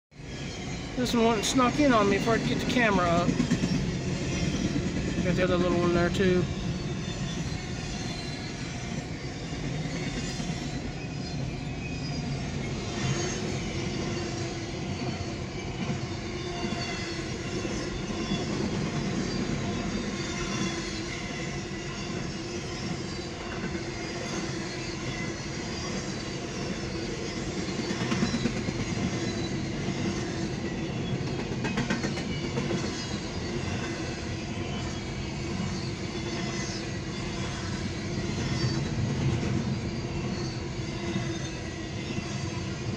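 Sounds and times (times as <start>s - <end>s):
freight train cars rolling: 0.2s - 42.9s.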